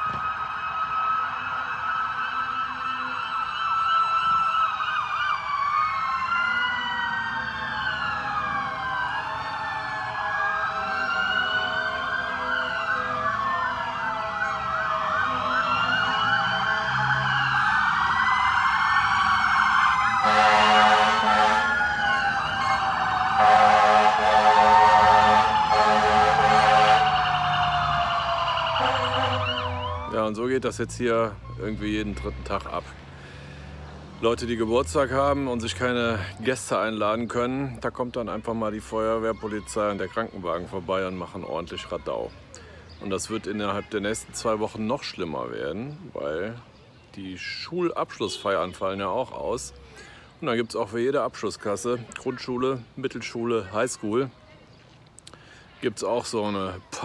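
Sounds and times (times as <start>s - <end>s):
emergency vehicle sirens wailing: 0.0s - 54.3s
long horn blasts: 20.2s - 21.7s, 23.4s - 27.2s, 28.8s - 29.8s.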